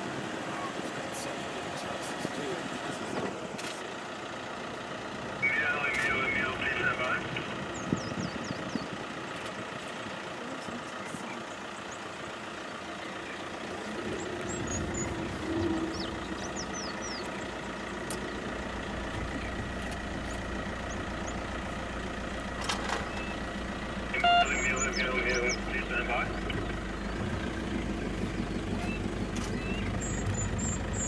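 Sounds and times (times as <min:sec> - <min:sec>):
deep engine rumble: 0:00.0 - 0:31.0
vehicle engine idling: 0:00.0 - 0:31.0
bird chirps: 0:07.3 - 0:09.5, 0:11.4 - 0:18.5, 0:23.0 - 0:23.5, 0:24.2 - 0:31.0.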